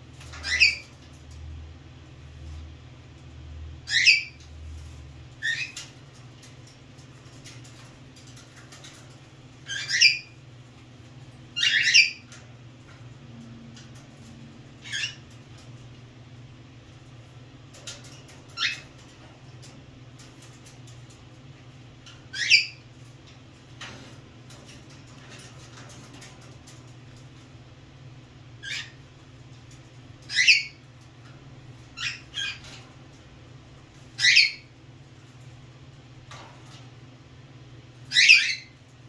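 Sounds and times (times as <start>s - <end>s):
steady low hum: 0.0s - 39.0s
cockatiel calls: 0.4s - 0.8s, 3.9s - 4.4s, 9.7s - 10.4s, 11.6s - 12.2s, 14.8s - 15.2s, 22.3s - 22.8s, 28.6s - 29.0s, 30.3s - 30.8s, 34.2s - 34.7s, 38.1s - 38.7s.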